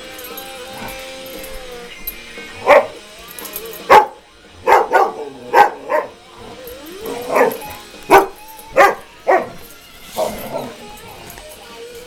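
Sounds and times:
dog barking: 2.6 - 3.0, 3.8 - 6.2, 7.1 - 10.8.

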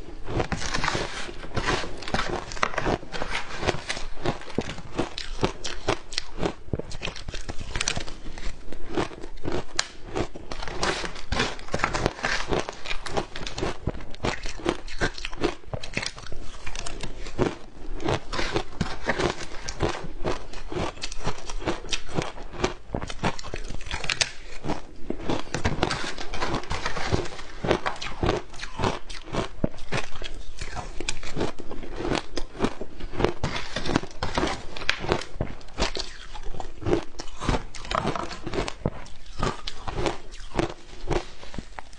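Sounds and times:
ice crunching between teeth: 0.3 - 41.9.

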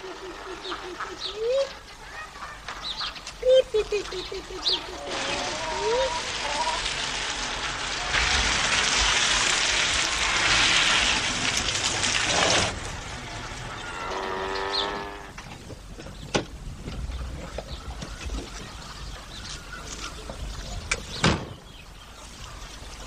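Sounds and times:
ducks quacking: 0.0 - 7.4
steady horn-like tone: 13.7 - 15.3.

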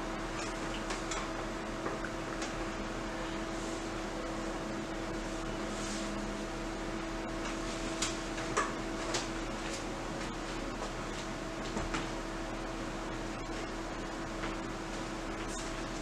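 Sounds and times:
fan humming: 0.0 - 16.0.

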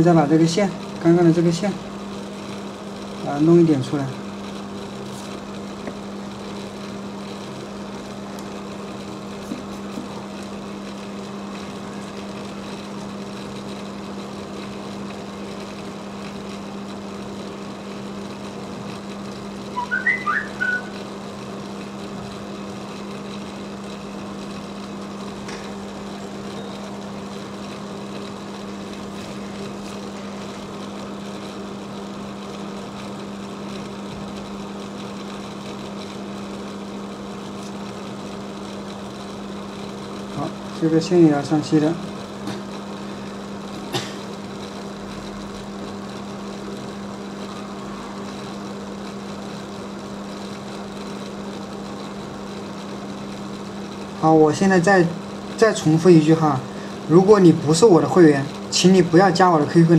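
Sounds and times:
electrical hum: 0.0 - 59.9
high whistle-like chirps: 19.7 - 21.0.

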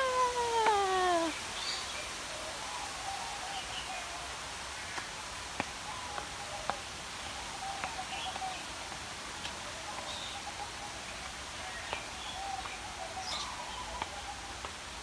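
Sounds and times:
footfalls on concrete steps: 5.0 - 6.9.

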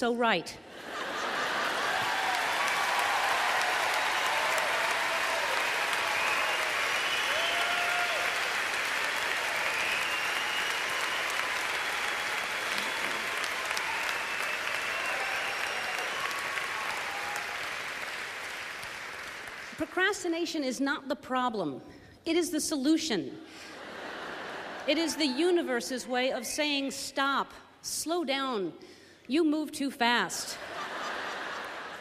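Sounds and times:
audience applauding: 1.0 - 19.8.

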